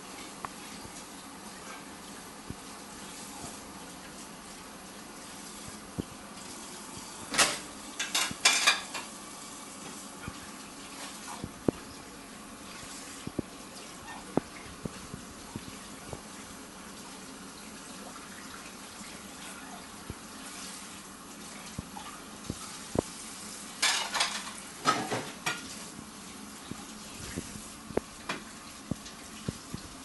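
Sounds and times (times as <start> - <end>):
dishes and utensils clinking: 7.3 - 9.1, 23.8 - 25.7.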